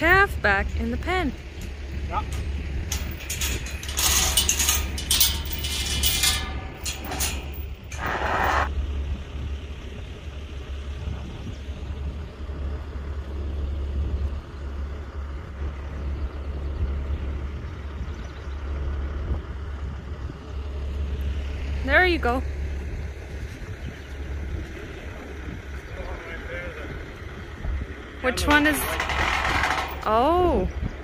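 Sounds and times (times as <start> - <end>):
metal gate and chain rattling: 0.0 - 8.7, 27.9 - 31.0
wind rumble on microphone: 0.0 - 31.0.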